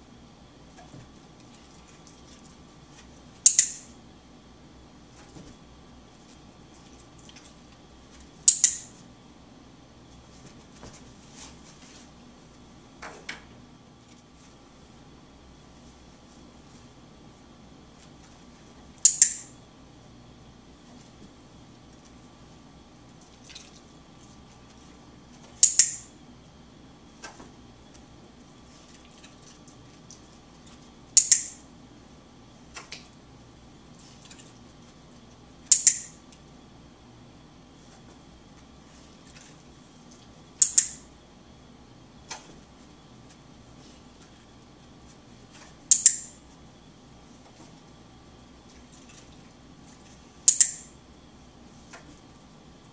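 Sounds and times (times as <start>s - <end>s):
dog-training clicker click: 3.4s - 3.9s, 8.5s - 8.9s, 19.0s - 19.5s, 25.6s - 26.1s, 31.2s - 31.6s, 35.7s - 36.2s, 40.6s - 41.0s, 45.9s - 46.3s, 50.5s - 50.9s
clicker double click: 31.2s - 31.6s, 45.9s - 46.3s.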